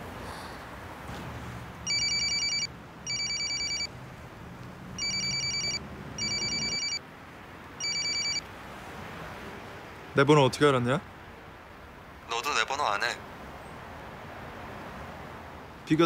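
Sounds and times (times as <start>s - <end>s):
mobile phone ringing: 1.8s - 3.9s, 5.0s - 7.0s, 7.8s - 8.5s.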